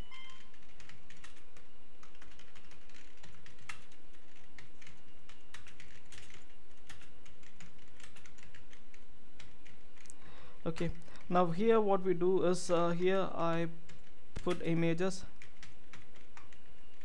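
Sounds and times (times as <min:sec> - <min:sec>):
typing on a keyboard: 0:00.1 - 0:10.1, 0:13.9 - 0:14.7, 0:15.3 - 0:17.0.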